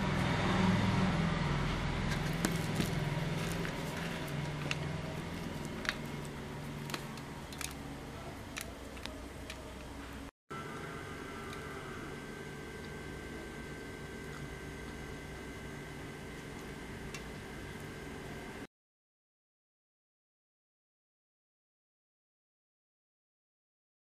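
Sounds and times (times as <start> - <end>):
low hum: 0.0 - 18.7.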